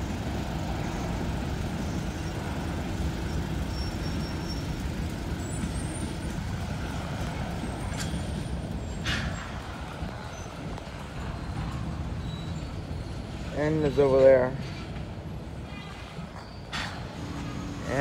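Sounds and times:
freight train wheels rumbling: 0.0s - 18.0s.

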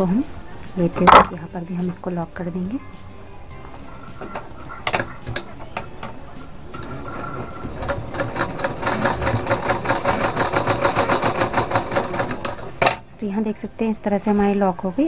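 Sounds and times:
sewing machine stitching: 6.7s - 12.8s.

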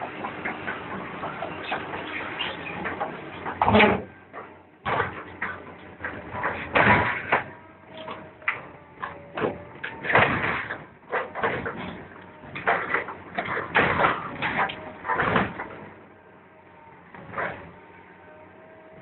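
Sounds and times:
metallic crunches and bangs: 0.0s - 16.2s
squeals of bending steel: 1.4s - 4.1s
hydraulic shear tearing steel: 1.6s - 16.0s.

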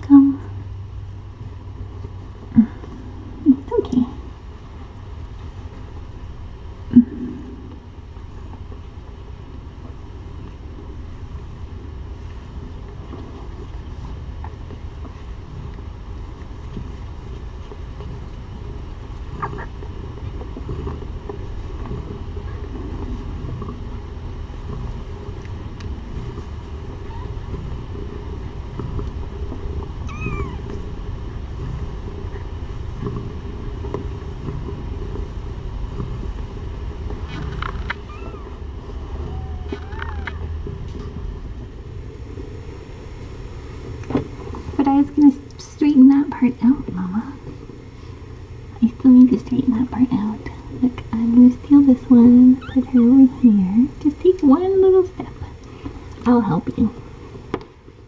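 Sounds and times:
low room hum: 0.0s - 58.0s
kittens mewing: 19.4s - 20.4s, 27.0s - 27.7s, 30.0s - 30.7s, 37.3s - 40.6s, 52.6s - 53.5s.

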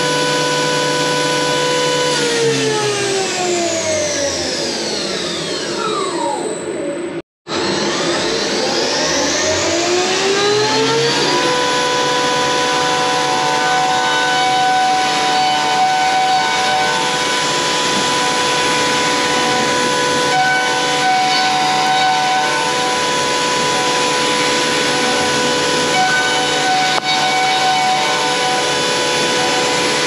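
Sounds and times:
milling spindle whine: 10.0s - 30.0s.

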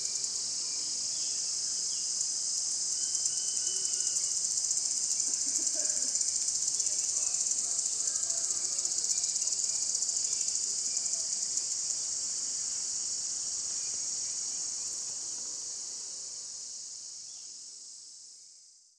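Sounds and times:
forest insects chorus: 0.0s - 18.4s.

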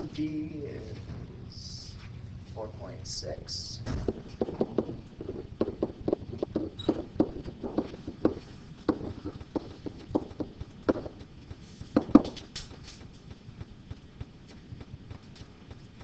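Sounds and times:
pen tapping on whiteboard: 4.1s - 11.1s.

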